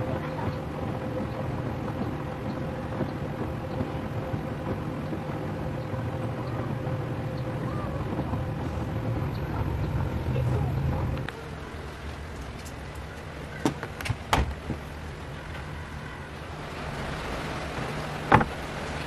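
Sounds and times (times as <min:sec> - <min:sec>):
washing machine drum tumbling laundry: 0:00.0 - 0:11.3
low motor hum: 0:00.0 - 0:19.0
thin steady whine: 0:00.0 - 0:19.0.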